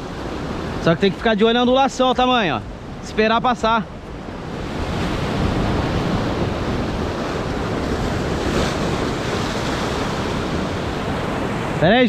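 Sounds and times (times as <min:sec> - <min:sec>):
surf breaking over rocks: 0:04.4 - 0:12.0.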